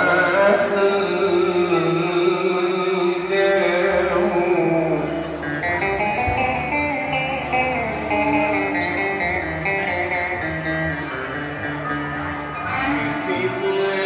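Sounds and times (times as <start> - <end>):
man singing with band: 0.0 - 6.6, 12.6 - 14.0
plucked instrument notes: 0.0 - 14.0.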